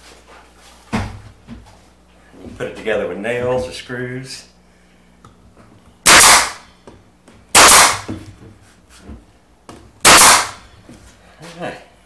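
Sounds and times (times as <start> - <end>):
nail gun firing: 6.0 - 6.7, 7.5 - 8.1, 10.0 - 10.6.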